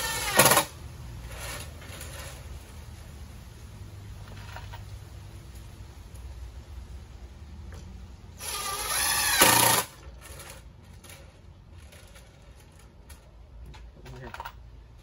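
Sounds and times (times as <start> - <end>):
cordless drill driving screw: 0.0 - 0.7, 8.4 - 10.6.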